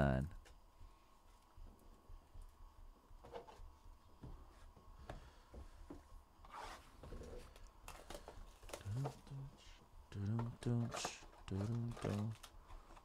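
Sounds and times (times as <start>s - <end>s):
crinkly rustle: 10.8s - 13.0s.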